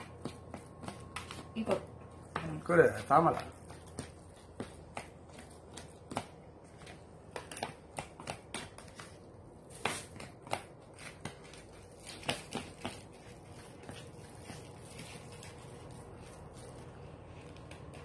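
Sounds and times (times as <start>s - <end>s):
rustling: 11.0s - 18.0s.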